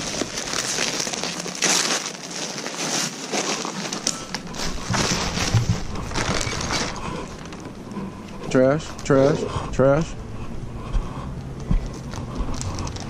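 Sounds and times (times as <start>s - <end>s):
plastic bags crinkling: 0.0s - 8.0s, 11.9s - 13.0s.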